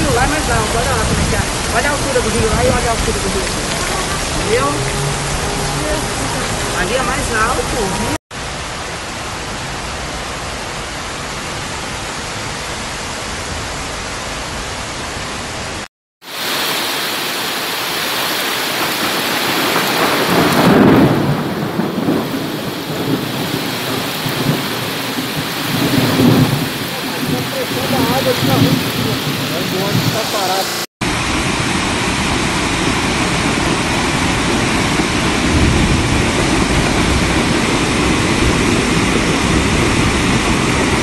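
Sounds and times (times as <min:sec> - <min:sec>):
floodwater rushing along street: 0:00.0 - 0:41.0
torrential rain hissing: 0:00.0 - 0:41.0.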